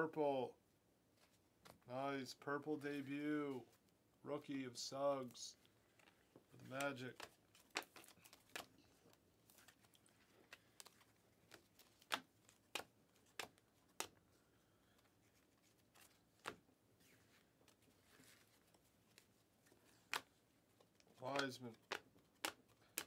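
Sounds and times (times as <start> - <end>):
trading cards flicking: 21.2 - 23.0.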